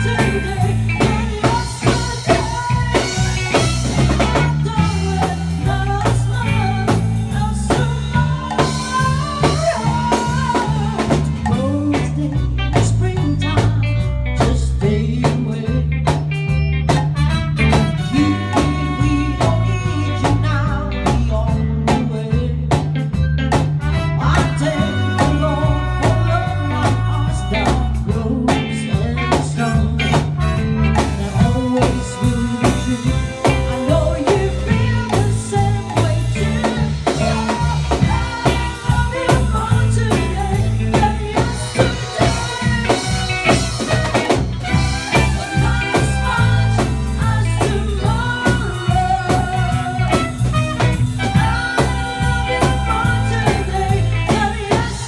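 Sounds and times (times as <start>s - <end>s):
woman singing into a microphone: 0.0s - 13.8s, 17.7s - 22.9s, 24.2s - 30.4s, 31.0s - 50.5s, 51.2s - 55.0s
drum kit: 0.0s - 55.0s
electric guitar: 0.0s - 55.0s
keyboard: 0.0s - 55.0s.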